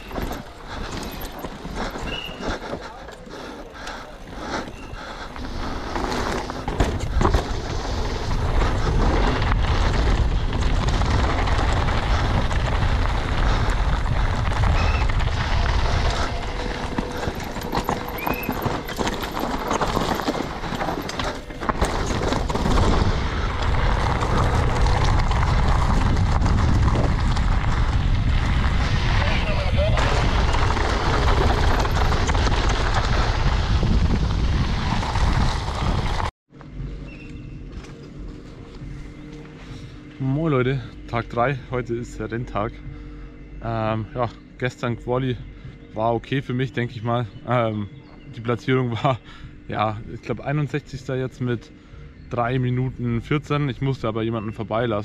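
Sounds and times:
bike knocking and rattling: 0:00.0 - 0:28.8, 0:29.8 - 0:36.3
tyres rolling over gravel: 0:00.0 - 0:36.3
wind rushing over microphone: 0:05.4 - 0:36.3.

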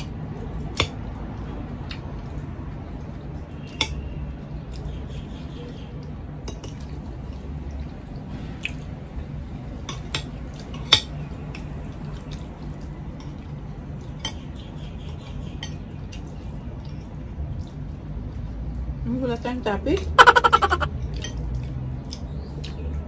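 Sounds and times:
cutlery clinking on plates: 0:09.8 - 0:11.1.

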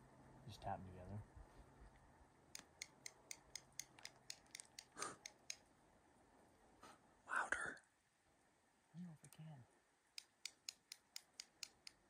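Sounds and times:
squirrel call clicks: 0:02.5 - 0:05.7, 0:10.2 - 0:12.0.

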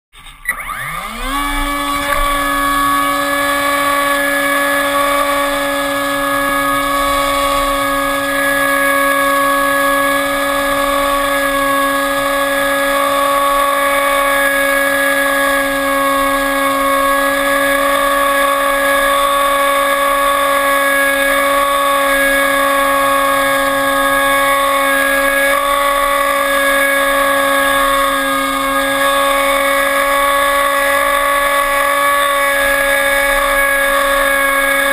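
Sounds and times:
model airplane motor whining: 0:00.2 - 0:34.9.

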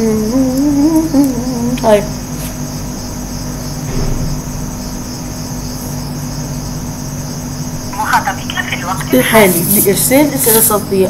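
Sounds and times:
low hum: 0:00.0 - 0:11.0
high-pitched hiss: 0:08.0 - 0:11.0.

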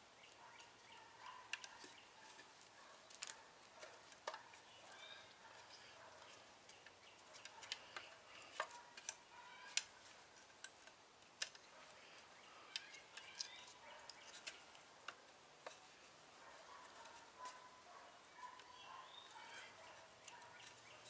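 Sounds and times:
cord twisting clicks and creaks: 0:02.6 - 0:04.5, 0:05.2 - 0:15.8.

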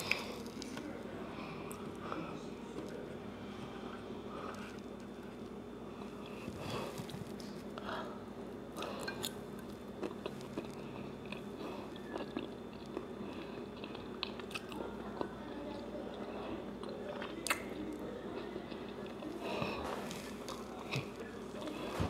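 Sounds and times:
faint steady hum: 0:00.0 - 0:22.0
close-up chewing with wet clicks: 0:09.6 - 0:19.4.

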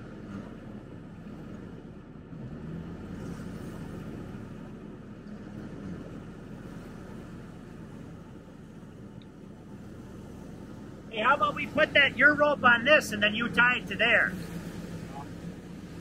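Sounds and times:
diesel engine idling: 0:03.8 - 0:16.0.

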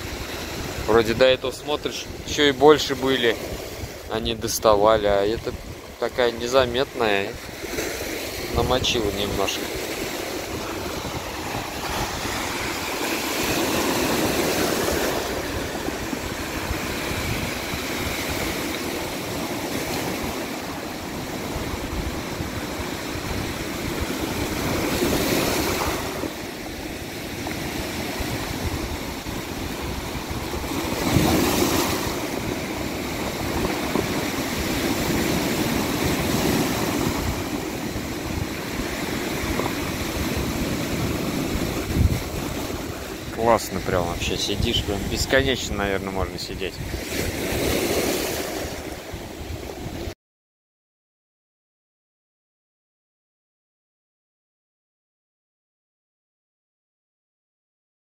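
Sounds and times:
surf breaking on pebble beach: 0:05.6 - 0:45.4.

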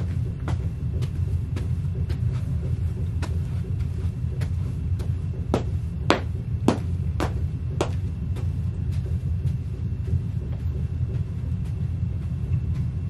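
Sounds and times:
boots stomping on plastic mat: 0:00.0 - 0:13.0
steady low rumble: 0:00.0 - 0:13.0.

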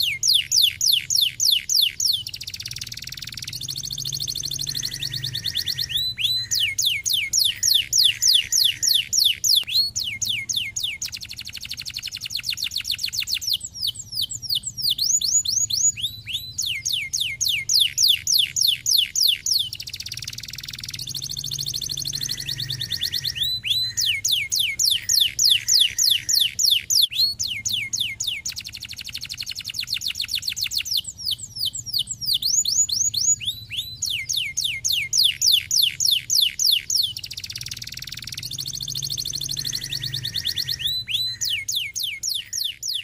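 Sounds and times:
canary singing: 0:00.0 - 0:43.0
short buzzy trills: 0:03.0 - 0:09.4, 0:20.3 - 0:26.8.

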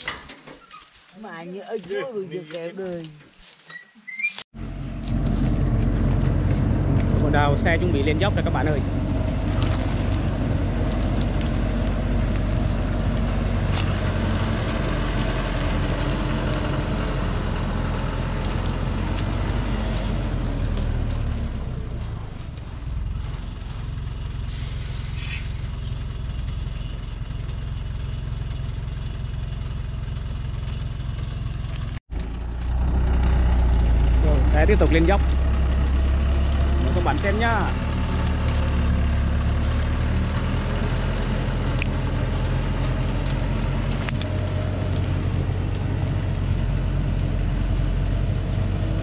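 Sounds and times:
truck engine under load: 0:04.5 - 0:49.0
air hiss: 0:24.5 - 0:25.7.

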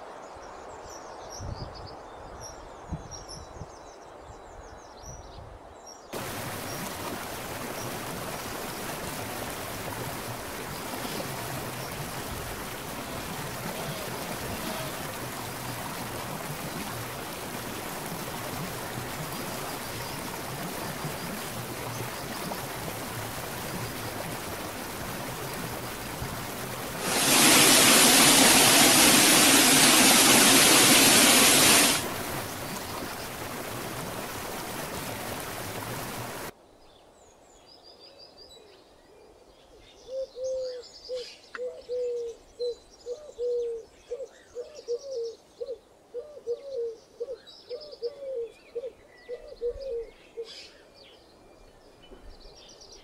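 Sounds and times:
waterfall splashing: 0:06.2 - 0:36.5
stream rushing over rocks: 0:06.2 - 0:36.6.

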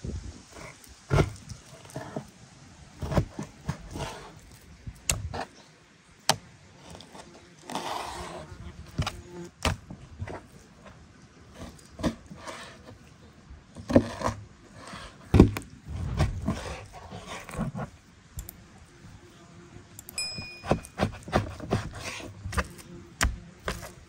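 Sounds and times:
loud thump: 0:15.3 - 0:16.6
high steady tone: 0:20.1 - 0:21.0
objects clinking and knocking: 0:20.2 - 0:21.1.

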